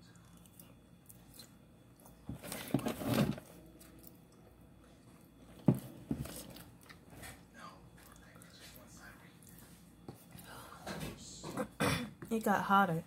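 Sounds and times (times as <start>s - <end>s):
chewing: 0.0s - 2.2s, 6.2s - 7.4s, 8.0s - 8.8s.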